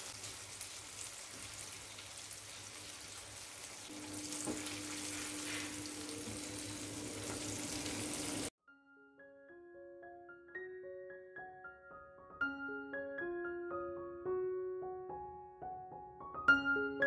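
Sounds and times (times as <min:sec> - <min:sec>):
shrimp sizzling in hot oil: 0:00.0 - 0:08.5.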